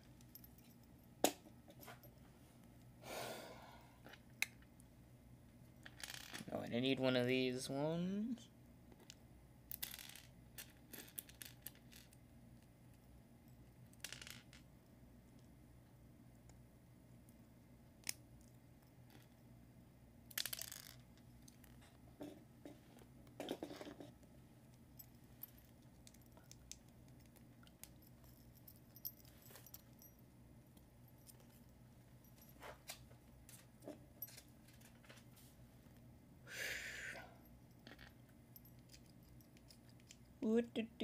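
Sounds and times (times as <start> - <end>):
faint steady hum: 0.0 - 41.0
plastic pieces clicking and rattling: 9.7 - 12.2, 20.3 - 21.8.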